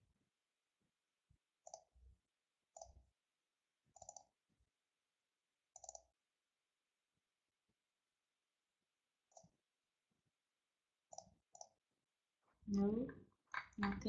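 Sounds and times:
computer mouse clicks: 0:01.6 - 0:01.9, 0:02.7 - 0:03.0, 0:03.9 - 0:04.3, 0:05.7 - 0:06.1, 0:09.3 - 0:09.6, 0:11.1 - 0:11.8.

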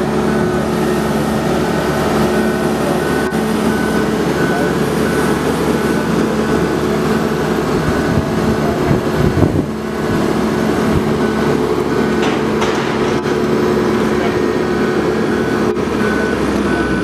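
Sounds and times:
boat hoist engine droning: 0:00.0 - 0:17.0.

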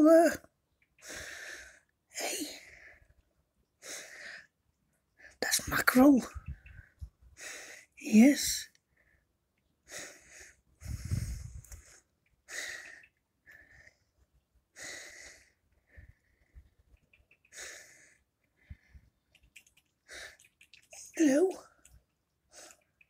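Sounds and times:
person breathing: 0:01.0 - 0:01.9, 0:03.8 - 0:04.6, 0:06.5 - 0:08.0, 0:08.9 - 0:19.2, 0:20.0 - 0:20.5.

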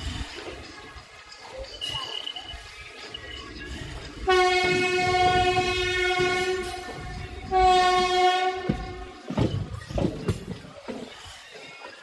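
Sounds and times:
low rumble of running train: 0:00.0 - 0:12.0
locomotive horn blasts: 0:04.2 - 0:09.2.

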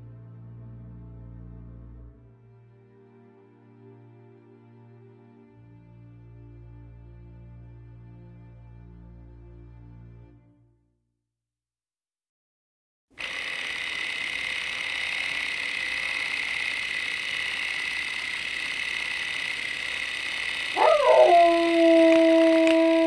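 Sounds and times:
dog howling: 0:20.7 - 0:23.0.

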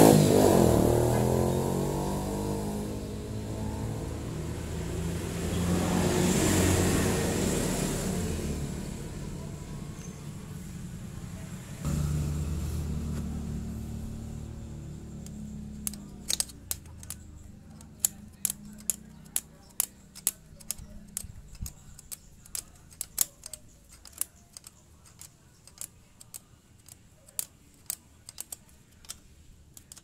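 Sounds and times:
spanner clicking on bolt: 0:15.2 - 0:30.0.

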